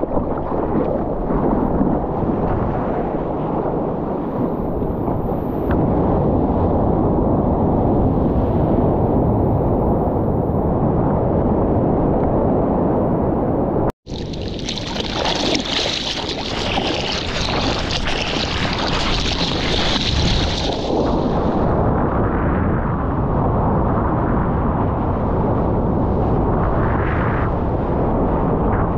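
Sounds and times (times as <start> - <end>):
wind and water rumble: 0.0 - 28.9
water spraying and splashing: 14.0 - 21.6.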